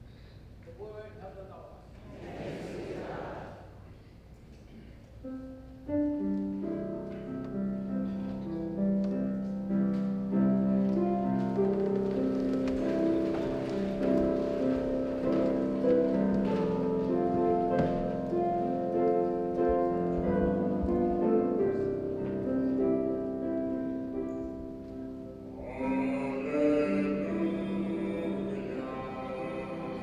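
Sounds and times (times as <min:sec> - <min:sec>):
church keyboard chords: 0:05.1 - 0:30.0
person singing: 0:25.5 - 0:30.0.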